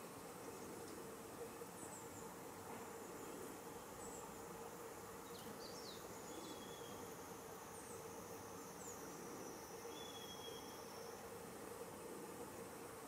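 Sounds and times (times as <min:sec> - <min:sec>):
background hiss: 0:00.0 - 0:13.0
insect drone: 0:00.0 - 0:13.0
bird whistle: 0:10.0 - 0:10.8.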